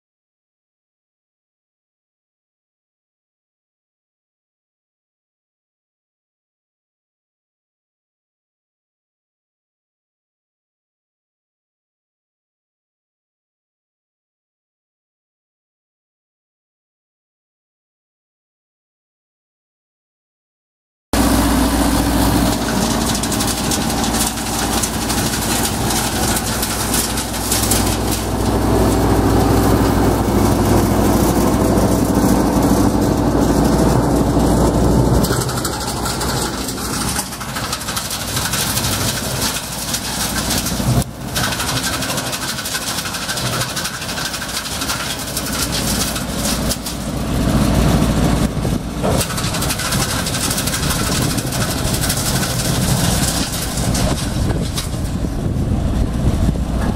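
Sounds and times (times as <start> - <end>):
tractor diesel engine idling: 21.2 - 56.9.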